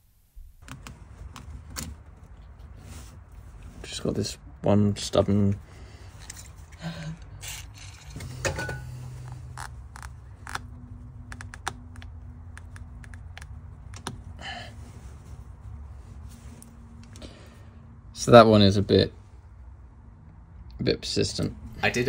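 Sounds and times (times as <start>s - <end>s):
wires and switch clicking: 11.3s - 14.2s.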